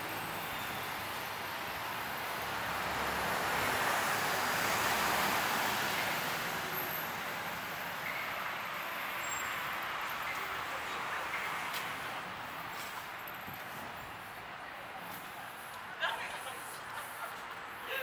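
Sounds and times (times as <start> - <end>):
traffic hum: 0.0 - 18.0
vehicle passing by: 2.5 - 6.8.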